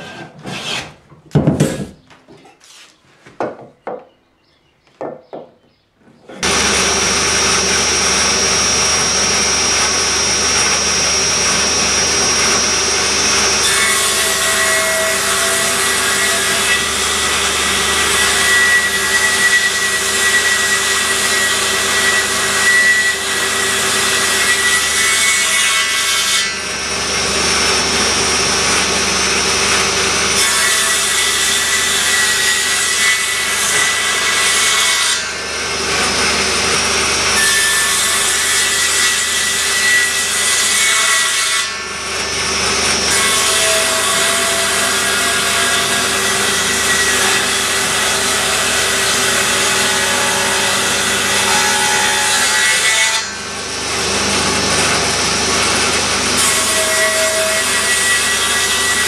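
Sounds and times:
power tool motor whine: 6.4s - 14.1s, 26.6s - 30.4s.

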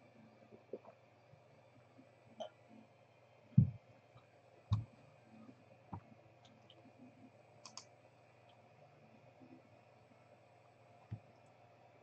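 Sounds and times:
faint steady hum: 0.0s - 12.0s
dull low knocks: 3.6s - 3.8s.

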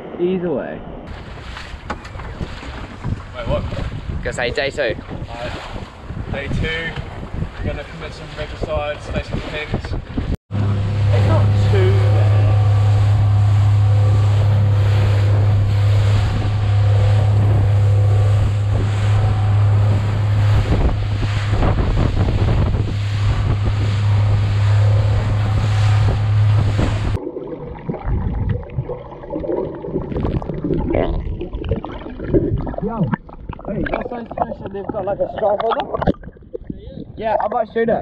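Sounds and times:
wind on microphone: 0.0s - 27.2s
water rushing and splashing: 0.0s - 37.9s
outboard motor droning: 1.1s - 9.8s, 10.5s - 27.9s
muffled underwater gurgling: 10.6s - 38.0s.

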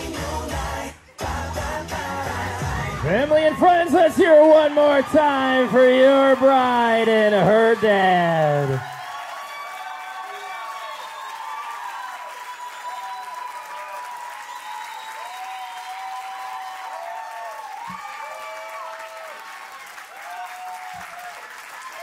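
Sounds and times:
voices calling out and cheering: 2.0s - 19.5s
crowd applauding: 2.8s - 22.0s.

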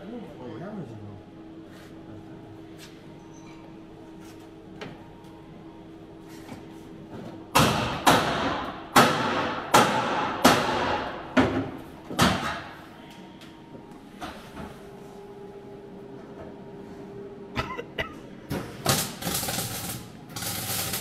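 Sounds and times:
short welding bursts: 18.9s - 21.0s.

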